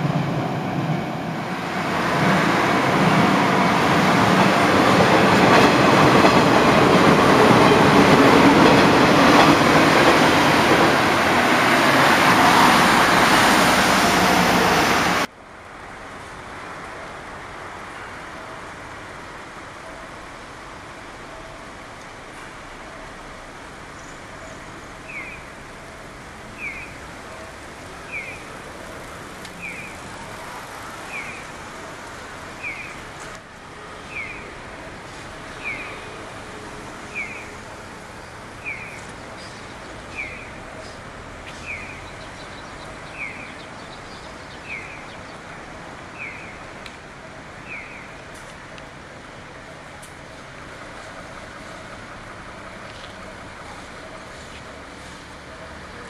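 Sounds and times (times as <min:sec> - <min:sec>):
traffic noise: 0:00.0 - 0:56.0.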